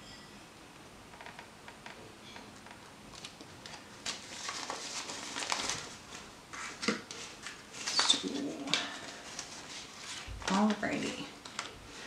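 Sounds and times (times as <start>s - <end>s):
banknotes rustling and flicking: 3.1s - 12.0s.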